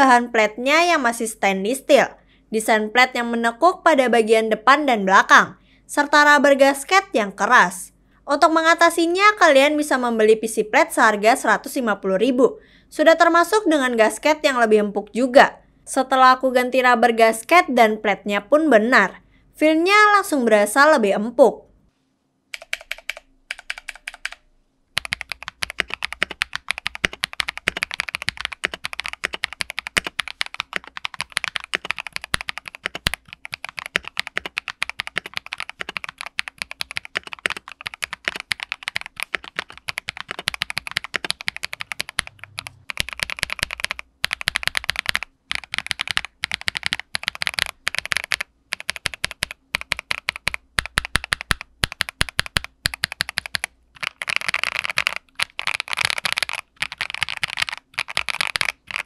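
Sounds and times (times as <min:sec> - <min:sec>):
mechanical keyboard typing: 0:22.5 - 0:24.4, 0:25.0 - 0:59.0.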